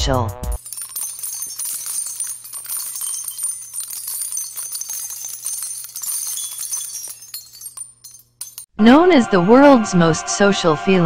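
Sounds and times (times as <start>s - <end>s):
jingling bell shimmer: 0.6s - 8.7s.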